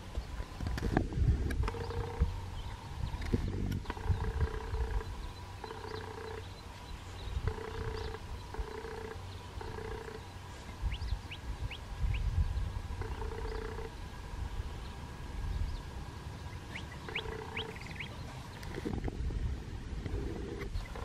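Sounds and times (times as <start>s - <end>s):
high falling bird chirps: 14.8s - 18.7s.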